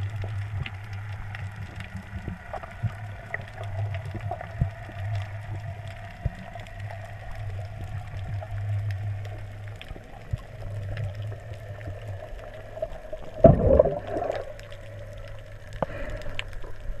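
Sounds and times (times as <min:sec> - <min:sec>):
faint clicks: 0:00.0 - 0:17.0
underwater low hum: 0:00.0 - 0:17.0
rush of bubbles: 0:09.8 - 0:16.3.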